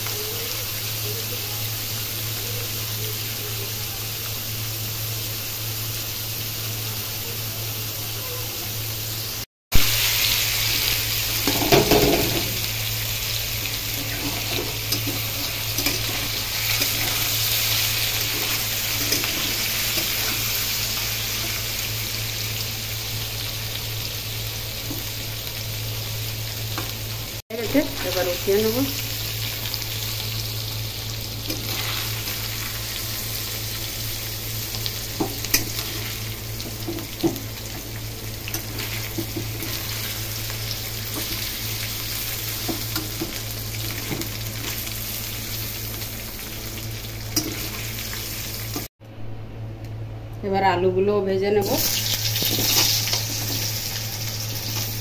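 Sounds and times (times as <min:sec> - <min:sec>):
cheese frying in hot oil: 0:00.0 - 0:48.9, 0:51.6 - 0:55.0
metal spatula scraping pan: 0:14.0 - 0:17.3.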